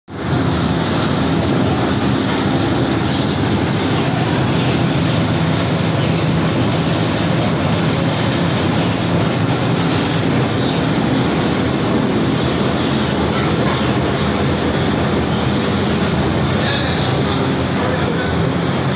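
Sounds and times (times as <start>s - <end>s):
heavy machinery running: 0.1s - 18.9s
low mechanical drone: 0.1s - 18.9s.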